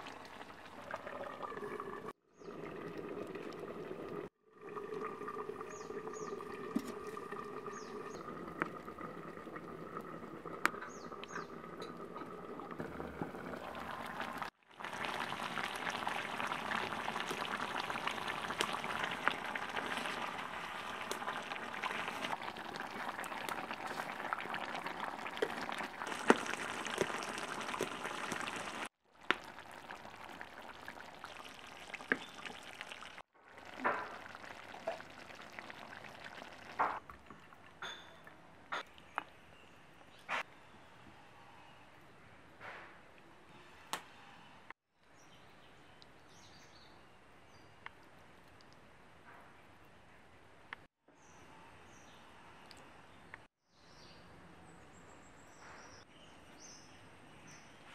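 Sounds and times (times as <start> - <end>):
curry bubbling and crackling: 0.0 - 39.7.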